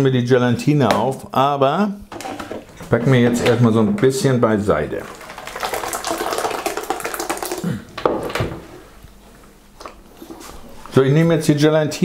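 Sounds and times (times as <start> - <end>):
thick mixture pouring into bowl: 4.4 - 7.8.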